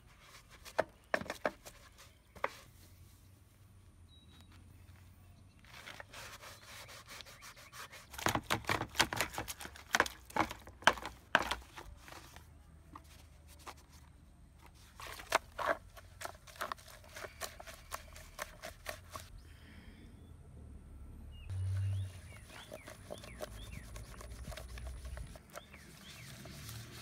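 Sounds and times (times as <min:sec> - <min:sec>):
brush scrubbing wet plastic: 0:05.8 - 0:12.3, 0:14.8 - 0:19.3, 0:21.6 - 0:27.0.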